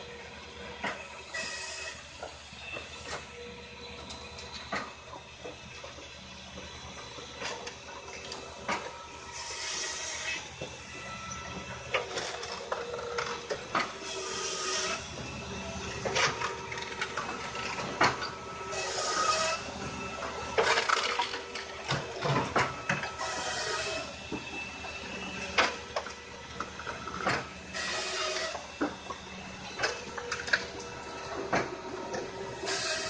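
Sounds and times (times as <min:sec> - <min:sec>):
machine hum: 0:00.0 - 0:33.0.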